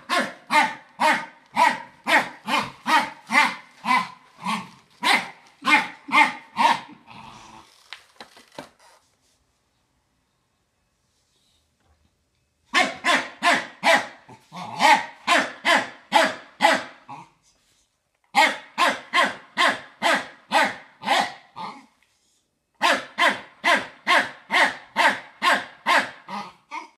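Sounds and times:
dog barking sharply: 0:00.0 - 0:04.2, 0:05.0 - 0:06.9, 0:12.7 - 0:14.2, 0:14.8 - 0:17.0, 0:18.3 - 0:21.5, 0:22.8 - 0:26.3.

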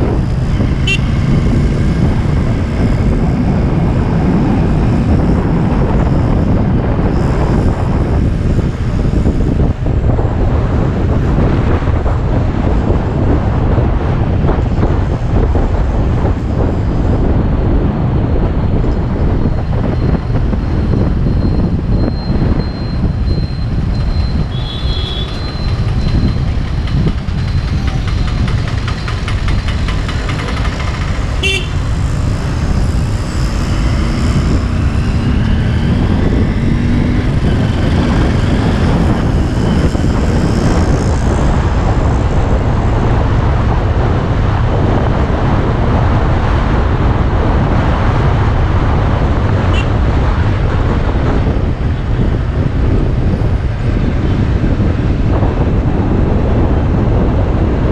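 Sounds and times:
vehicle wind and road noise: 0:00.0 - 0:57.9
vehicles passing: 0:00.0 - 0:57.9
car horn toot: 0:00.8 - 0:01.2, 0:24.4 - 0:26.2, 0:31.4 - 0:31.8, 0:49.7 - 0:49.9.

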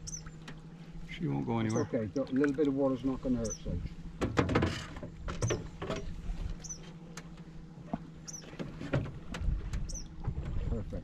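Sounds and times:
water sloshing around hull: 0:00.0 - 0:11.0
knocks on canoe hull: 0:04.2 - 0:06.1.

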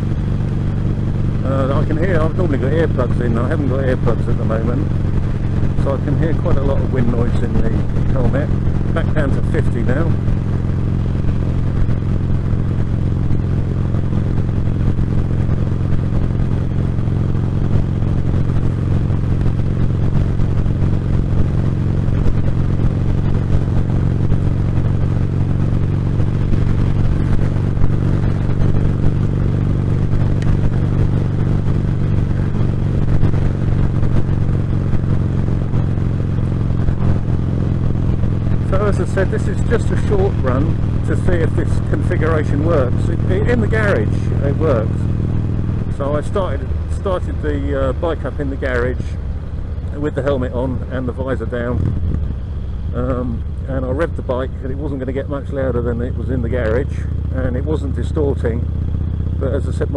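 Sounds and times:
motorcycle engine running: 0:00.0 - 0:59.9
wind noise in helmet: 0:51.8 - 0:52.4.

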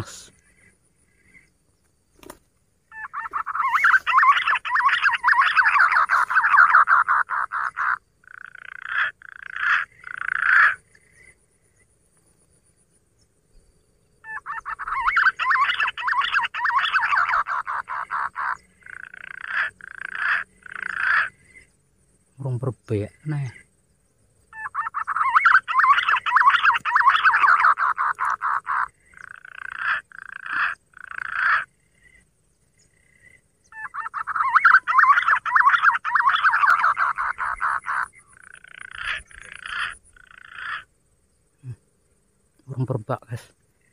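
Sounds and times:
mouth-imitated pigeon calls: 0:02.2 - 0:10.8, 0:14.2 - 0:21.4, 0:24.6 - 0:31.7, 0:33.7 - 0:40.9.

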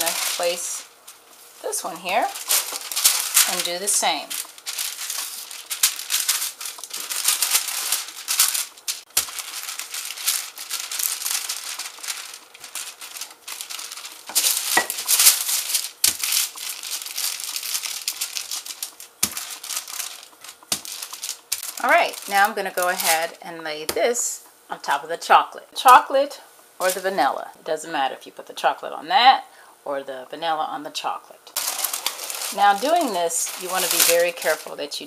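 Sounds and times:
parchment paper crinkling: 0:00.0 - 0:23.4, 0:26.8 - 0:27.2, 0:31.6 - 0:35.0.

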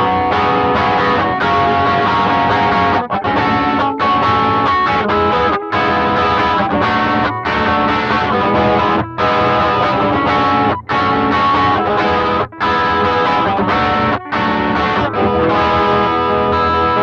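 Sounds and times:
overdriven electric guitar chords: 0:00.0 - 0:17.0.

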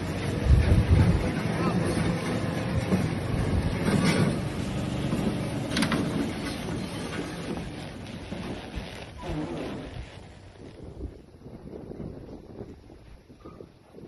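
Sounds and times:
vehicle engine rumbling while driving: 0:00.0 - 0:10.8.

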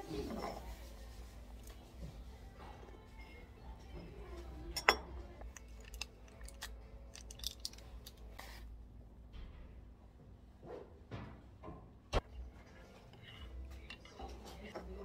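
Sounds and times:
china clink: 0:04.7 - 0:05.1.

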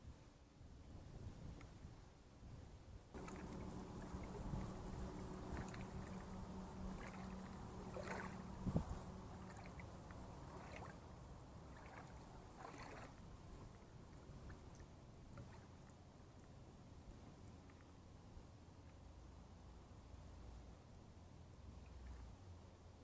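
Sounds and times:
wind rumble on microphone: 0:00.0 - 0:15.6
faint steady hum: 0:00.0 - 0:23.0
small waves lapping against hull: 0:03.1 - 0:18.7, 0:21.6 - 0:23.0.

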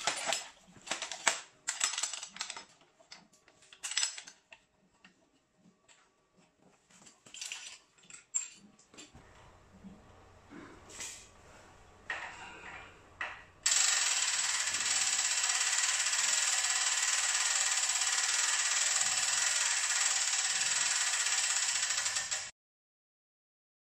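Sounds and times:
winch ratchet clicking: 0:13.7 - 0:22.5.

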